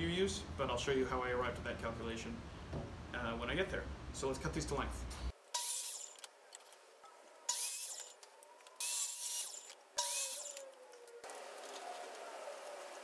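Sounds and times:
saw blade ripping through wood: 0:05.5 - 0:06.3, 0:07.5 - 0:08.2, 0:08.8 - 0:10.7
saw motor whine: 0:08.7 - 0:13.0.

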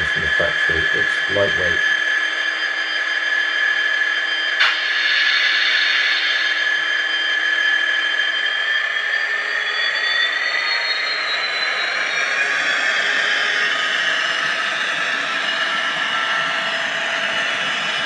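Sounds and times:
diesel engine sound from small speakers: 0:00.0 - 0:01.9
high whine of model motor: 0:00.2 - 0:18.0.

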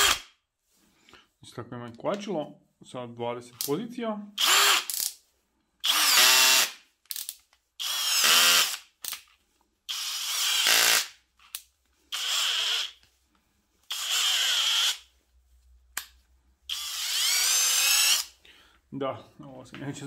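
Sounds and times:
cordless drill whining: 0:04.4 - 0:05.1, 0:05.8 - 0:06.8, 0:07.8 - 0:08.8, 0:09.9 - 0:11.1, 0:12.1 - 0:13.0, 0:13.9 - 0:15.1, 0:16.7 - 0:18.4.

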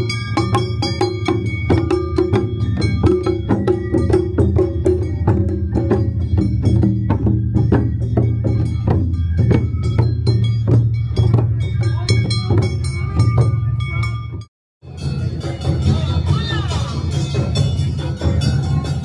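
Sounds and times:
taiko drums beaten with sticks: 0:00.0 - 0:19.0.

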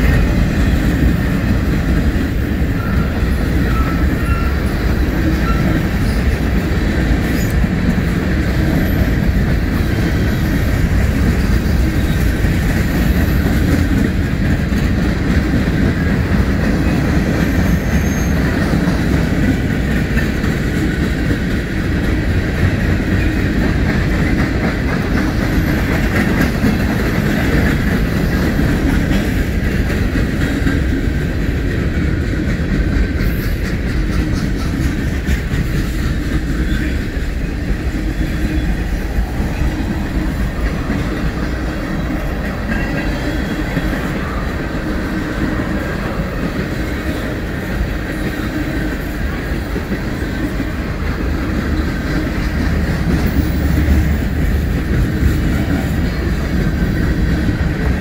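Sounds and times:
freight train rolling past: 0:00.0 - 0:58.0.

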